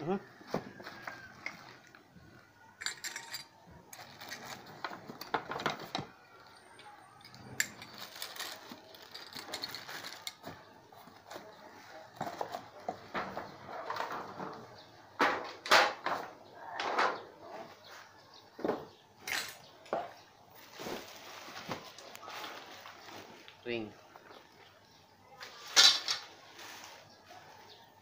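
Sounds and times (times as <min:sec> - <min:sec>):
plastic wrap and cardboard rustling: 0:00.3 - 0:02.4, 0:03.9 - 0:06.8, 0:07.5 - 0:14.8, 0:20.5 - 0:23.9, 0:25.4 - 0:27.9
metal tubes clicking and knocking: 0:02.8 - 0:10.6.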